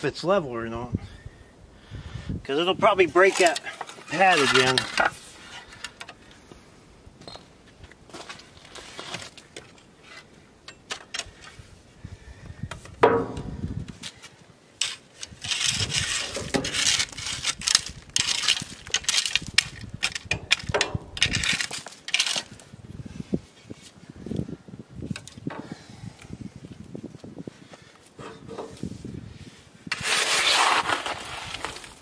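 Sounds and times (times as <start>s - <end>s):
rake scraping through gravel: 2.8s - 5.9s, 8.1s - 10.3s, 14.8s - 22.8s, 28.2s - 32.0s.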